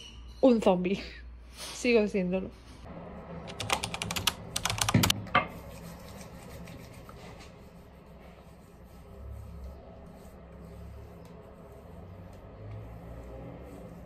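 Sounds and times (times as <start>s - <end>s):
sharp clicks and knocks: 3.5s - 5.5s.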